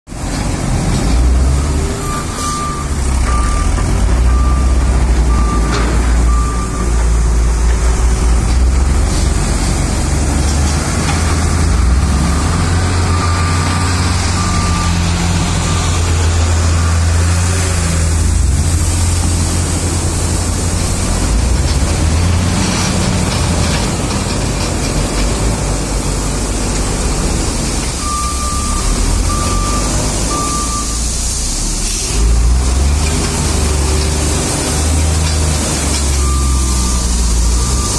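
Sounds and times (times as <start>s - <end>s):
diesel engine rumble: 0.1s - 37.9s
reversing alarm beeps: 1.5s - 6.9s, 13.0s - 16.1s, 28.0s - 31.1s, 36.1s - 37.9s.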